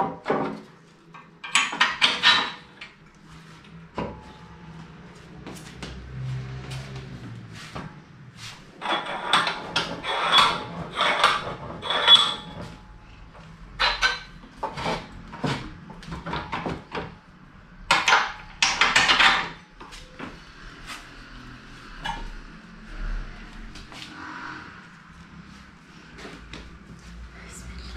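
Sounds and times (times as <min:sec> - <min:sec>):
wood and metal knocking and rattling: 0:01.4 - 0:02.8, 0:17.9 - 0:19.6.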